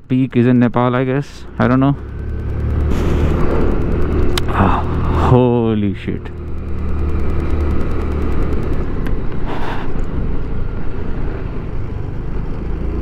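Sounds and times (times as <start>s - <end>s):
scooter engine running: 1.3s - 13.0s.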